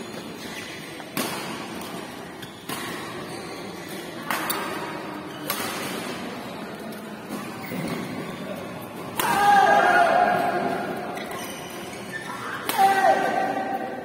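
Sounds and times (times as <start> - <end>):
low murmur of hall noise: 0.0 - 14.0
racket hitting shuttlecock: 1.1 - 2.0, 5.4 - 6.2.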